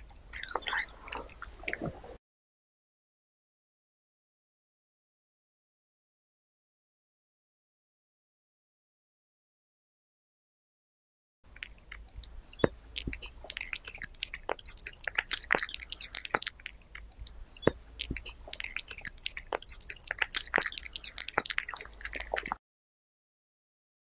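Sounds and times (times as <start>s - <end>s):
cat chewing raw meat: 0.0s - 2.2s, 11.5s - 22.6s.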